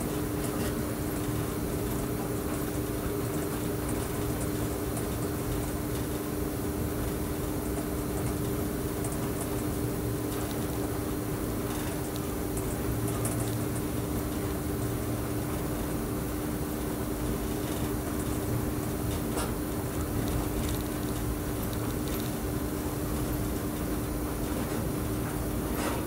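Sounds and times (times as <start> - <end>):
low electrical hum: 0.0 - 26.0.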